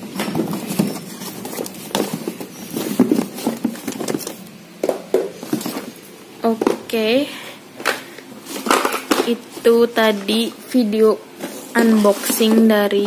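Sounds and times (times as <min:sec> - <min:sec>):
boxes knocking against cardboard: 0:00.0 - 0:06.9.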